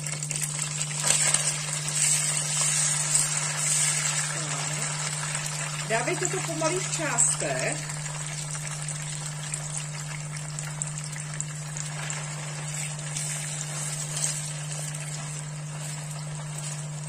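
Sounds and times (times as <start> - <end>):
meat sizzling in hot oil: 0.0 - 17.0
spatula stirring meat: 1.0 - 5.4, 11.9 - 17.0.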